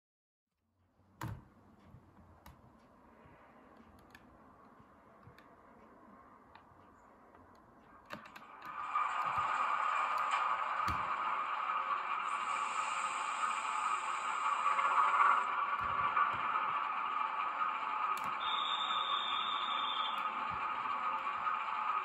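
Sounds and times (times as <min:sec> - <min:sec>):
model locomotive motor whirring: 0:08.4 - 0:22.0.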